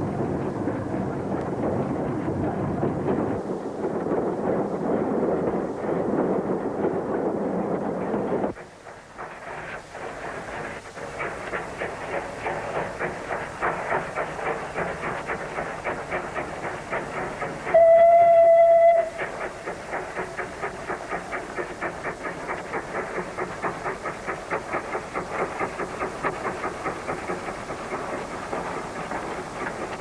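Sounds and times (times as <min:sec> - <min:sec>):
steam locomotive exhaust beats: 0:00.0 - 0:30.0
steam whistle blast: 0:17.7 - 0:19.2.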